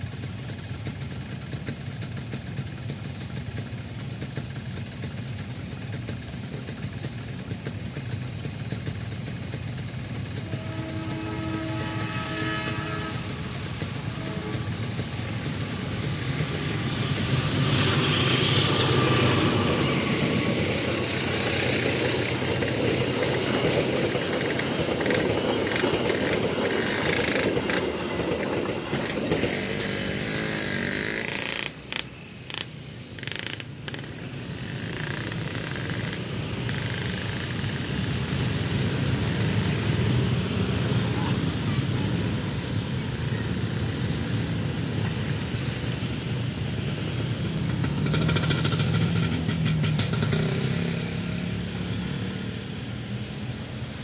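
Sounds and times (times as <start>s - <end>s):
motorcycle engines: 0.0s - 54.0s
train wheels on rails: 0.0s - 54.0s
held horn tone: 10.4s - 15.7s.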